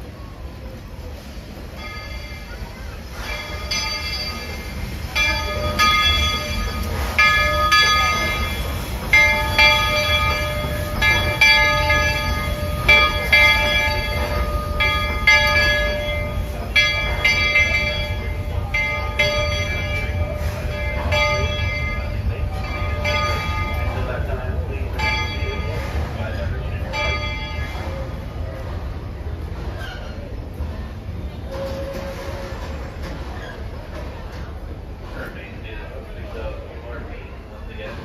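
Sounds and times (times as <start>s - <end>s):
locomotive bell ringing: 1.2s - 30.2s.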